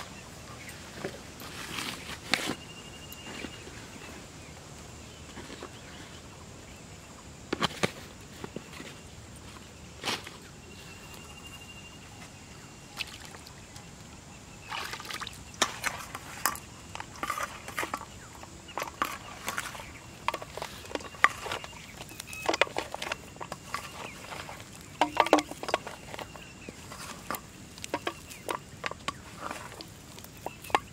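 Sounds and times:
hands working bait in steel plate: 0:14.7 - 0:30.9.

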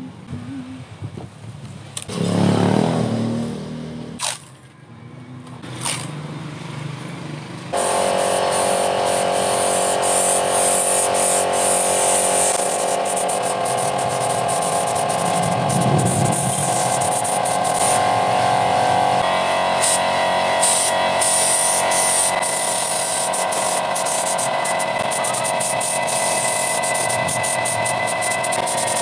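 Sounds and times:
motor sound: 0:07.7 - 0:29.0
paint spray gun hissing: 0:07.7 - 0:29.0
steady hum: 0:07.7 - 0:29.0.

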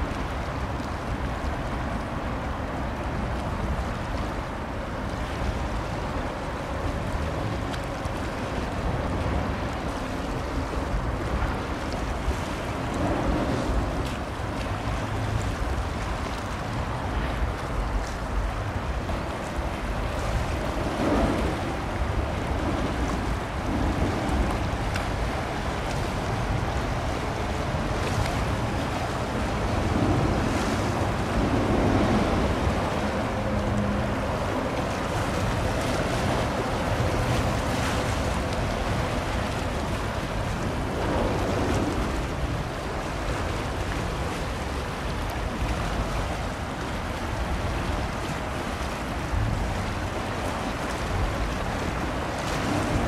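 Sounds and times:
wind buffeting microphone: 0:00.0 - 0:53.0
water washing: 0:10.6 - 0:53.0.

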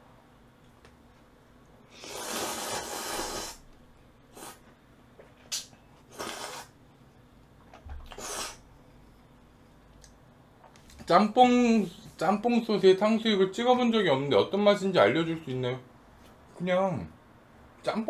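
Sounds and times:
person slurping noodles: 0:01.9 - 0:03.6, 0:04.3 - 0:04.6, 0:06.1 - 0:06.8, 0:08.1 - 0:08.6.

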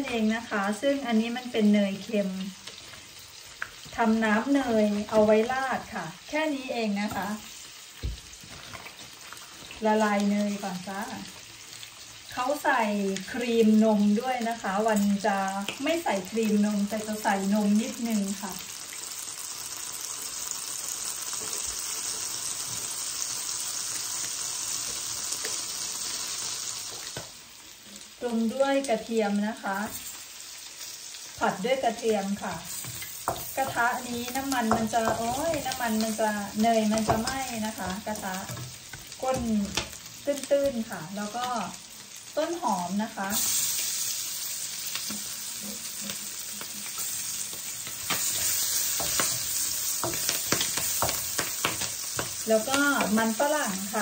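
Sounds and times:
butter sizzling in a wok: 0:00.0 - 0:54.0
spatula scraping a wok: 0:45.1 - 0:53.4.

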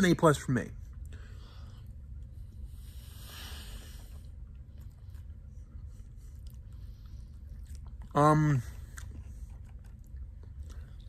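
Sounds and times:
person chewing food: 0:04.1 - 0:11.0.

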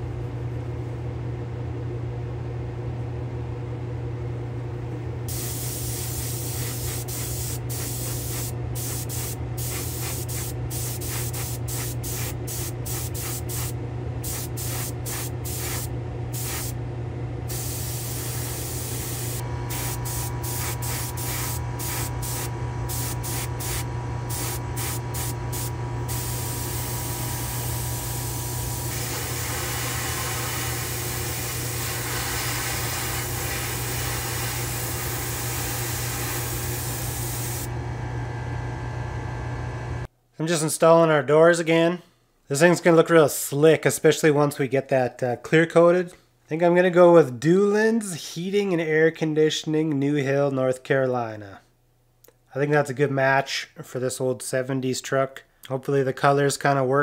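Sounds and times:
steady low hum: 0:00.0 - 0:40.1
airbrush air hiss: 0:05.3 - 0:16.8, 0:17.5 - 0:37.7.

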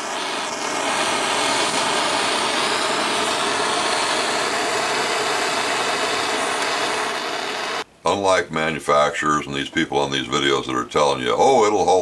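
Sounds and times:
butane torch hissing: 0:00.0 - 0:07.9.

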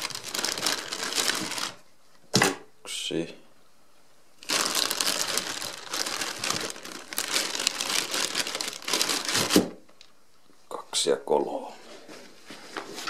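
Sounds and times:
plastic bag crinkling: 0:00.0 - 0:01.8, 0:04.4 - 0:10.1.

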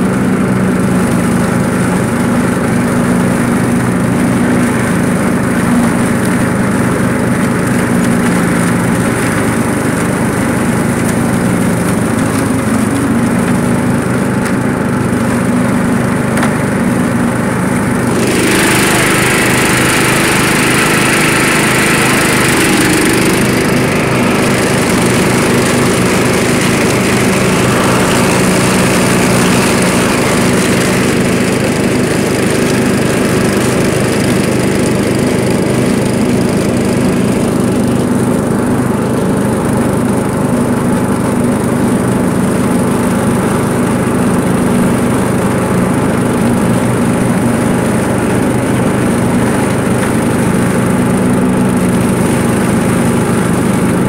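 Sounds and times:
lawn mower engine running: 0:00.0 - 0:54.0
loud hissing rush: 0:18.0 - 0:31.8.

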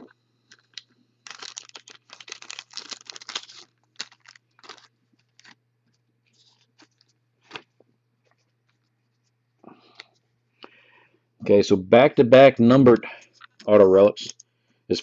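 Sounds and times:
plastic wrapper crinkling and tearing: 0:00.5 - 0:08.9.

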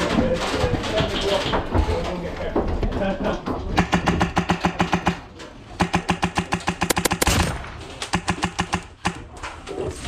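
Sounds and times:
airsoft rifle rapid shots: 0:03.8 - 0:05.2, 0:05.8 - 0:09.3.

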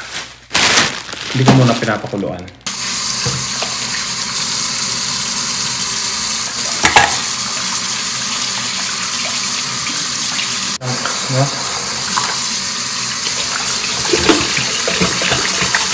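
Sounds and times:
tap running into a pot: 0:03.2 - 0:03.9, 0:06.7 - 0:07.3.

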